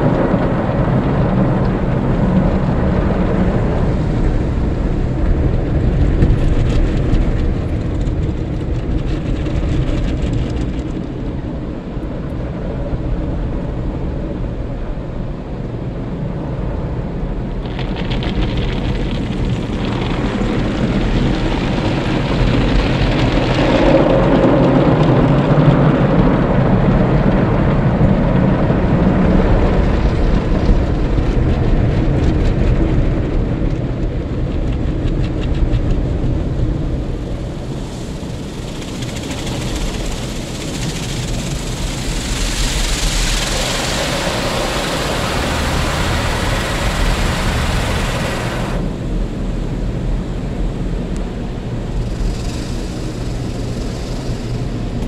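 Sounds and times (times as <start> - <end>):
car wash brushes churning: 34.6 - 49.2, 51.7 - 55.0
water spray hissing: 37.6 - 48.8.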